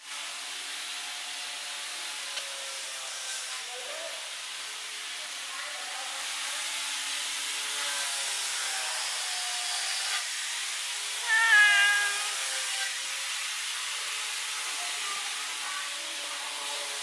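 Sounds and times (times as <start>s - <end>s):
kittens meowing: 11.2s - 12.6s.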